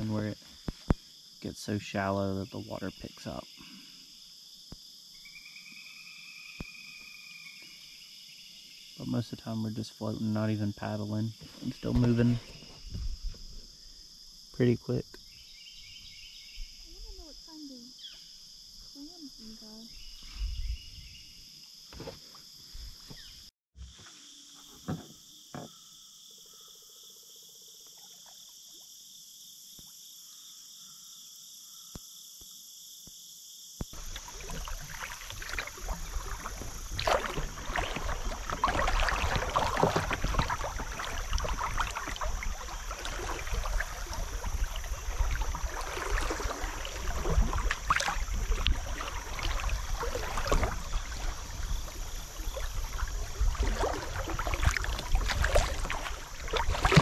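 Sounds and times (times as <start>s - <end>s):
water rushing along a kayak bow: 9.0s - 14.2s, 33.9s - 57.0s
high insect chirring: 24.2s - 57.0s.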